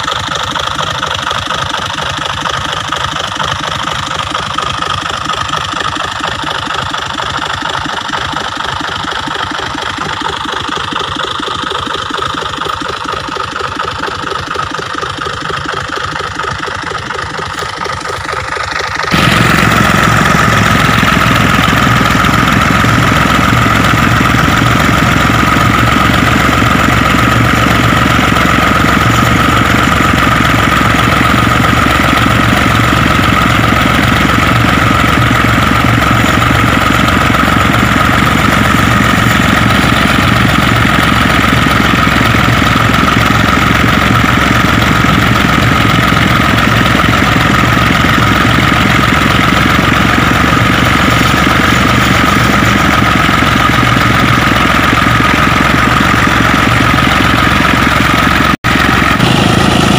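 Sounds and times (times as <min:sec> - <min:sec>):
tractor diesel engine: 0:00.0 - 0:59.9
high whine: 0:12.0 - 0:57.5, 0:58.7 - 0:59.9.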